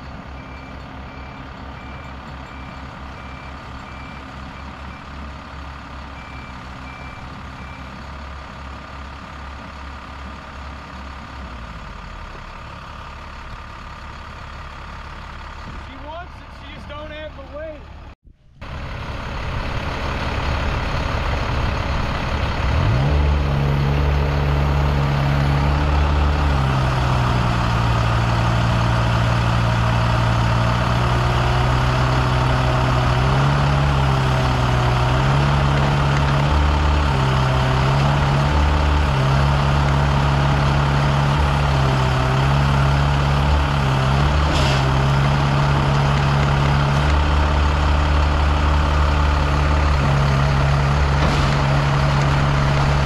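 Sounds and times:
excavator engine working hard: 17.8 - 53.0.

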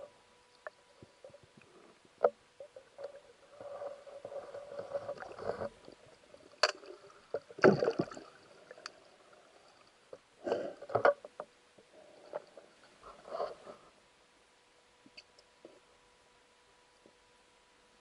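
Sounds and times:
low hum: 0.0 - 18.0
water swishes and knocks: 2.2 - 9.0
underwater water rushing: 3.5 - 9.9.

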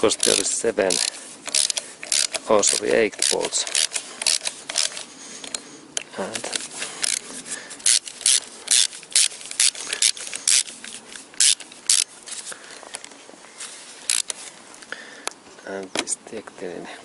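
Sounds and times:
ratchet wrench clicking: 0.0 - 5.6, 6.5 - 7.2, 7.8 - 12.1, 14.1 - 14.4.

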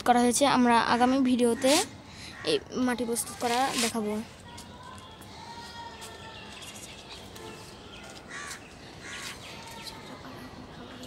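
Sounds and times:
faint outdoor background: 0.0 - 11.0
crows cawing: 1.6 - 2.6, 8.3 - 9.4.

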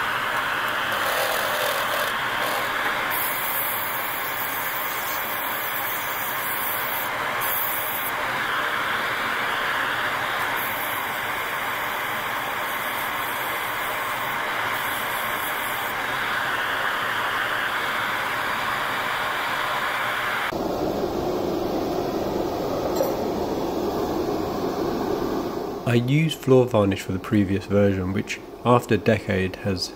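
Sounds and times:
workshop machinery rushing hiss: 0.0 - 20.5.

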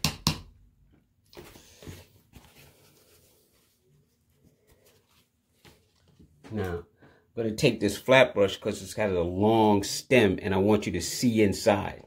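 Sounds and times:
soft rustles: 1.3 - 6.6.

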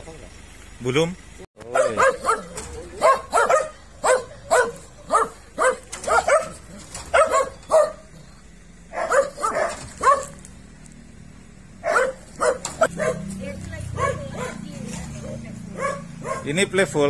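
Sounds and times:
dog barking: 1.6 - 8.2, 8.9 - 10.4, 11.8 - 16.6.

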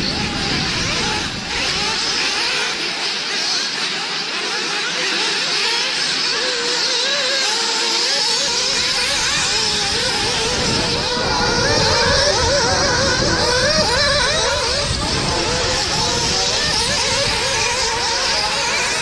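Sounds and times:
low rumbling noise: 0.0 - 2.8, 8.6 - 19.0
model car engines buzzing: 0.0 - 19.0.

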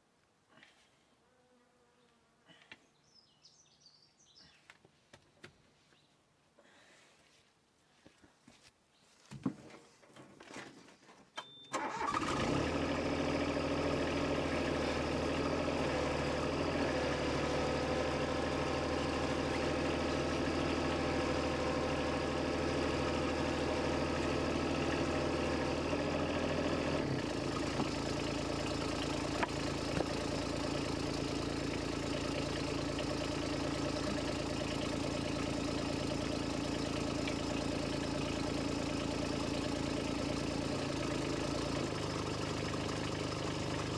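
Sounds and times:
high beep: 11.4 - 11.8
excavator diesel engine: 11.8 - 43.9.

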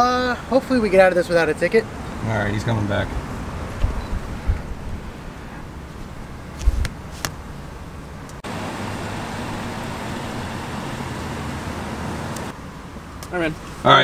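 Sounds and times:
vehicle idling rumble: 2.2 - 13.2.

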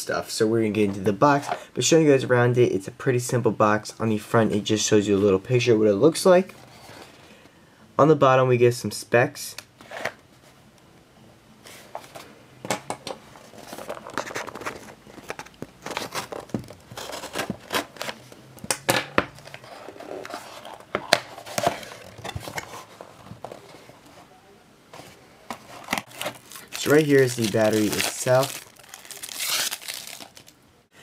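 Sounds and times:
cardboard rustling and scraping: 13.3 - 18.4, 19.3 - 24.3, 24.9 - 30.2.

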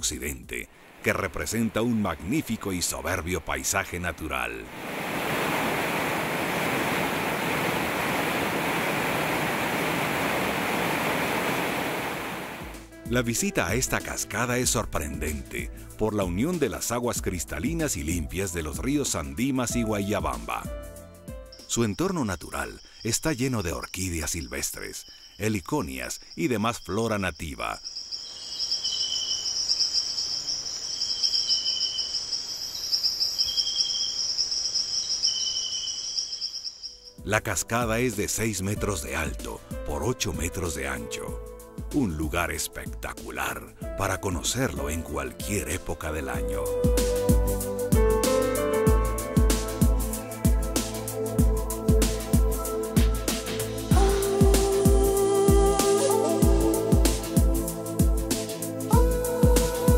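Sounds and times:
waterfall and rapids rushing: 0.7 - 12.8
lower insect call: 4.8 - 12.6, 21.1 - 37.8, 50.0 - 59.9
insect high pulsing trill: 21.4 - 37.4, 49.2 - 59.9.

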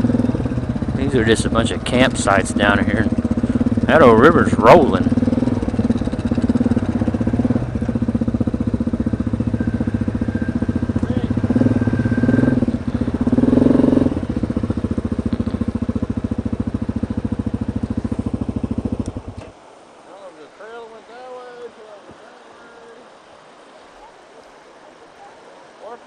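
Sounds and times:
quad bike engine idling: 0.0 - 19.5.

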